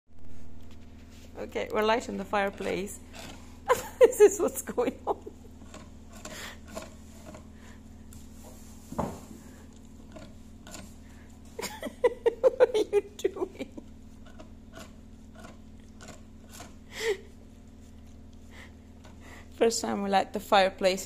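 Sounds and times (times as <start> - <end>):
steady low hum: 0.1 - 21.0
dog gnawing on wood: 1.1 - 8.4, 9.0 - 11.6, 13.7 - 19.6
dog biting wood: 2.4 - 3.8, 5.4 - 7.7, 9.4 - 11.3, 13.9 - 16.9.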